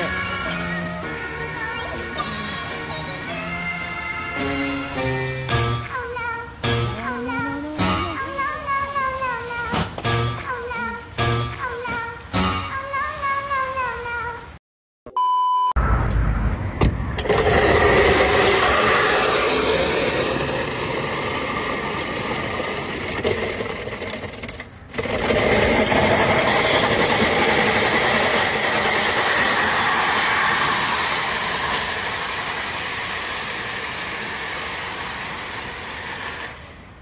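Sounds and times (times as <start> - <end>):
wheel clamp scraping road: 17.2 - 37.0.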